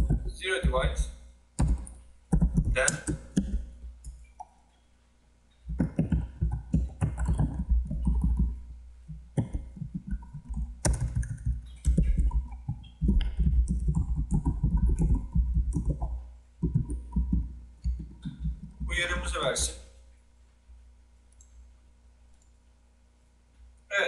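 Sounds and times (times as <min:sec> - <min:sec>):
typing on computer keyboard: 0:01.6 - 0:03.7, 0:05.7 - 0:08.6, 0:09.4 - 0:18.9.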